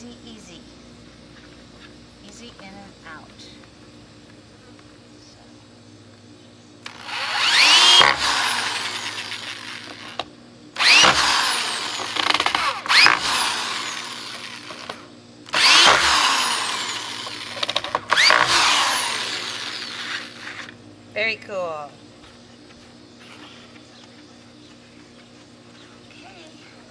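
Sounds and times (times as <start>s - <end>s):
electric drill whining: 6.8s - 20.8s.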